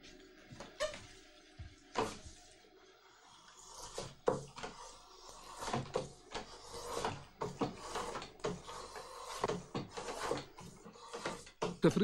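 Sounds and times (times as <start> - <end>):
tools scraping and rustling: 3.8 - 11.8.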